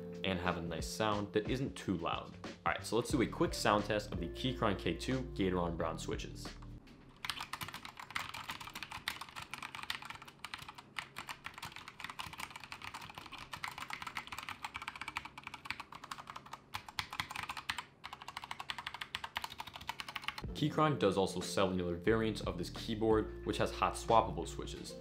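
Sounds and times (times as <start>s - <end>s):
mechanical keyboard typing: 7.1s - 20.4s.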